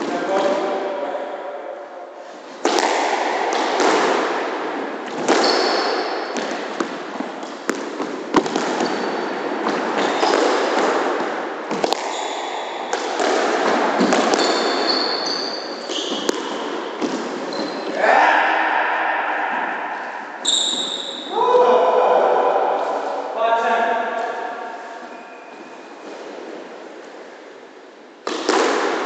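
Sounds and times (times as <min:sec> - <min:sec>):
squash ball hitting rackets and walls: 0:02.5 - 0:18.0, 0:28.2 - 0:29.0
shoes squeaking on floor: 0:05.2 - 0:06.4, 0:08.7 - 0:10.7, 0:12.1 - 0:12.7, 0:14.0 - 0:16.4, 0:17.0 - 0:18.0, 0:20.4 - 0:21.3, 0:24.9 - 0:26.2.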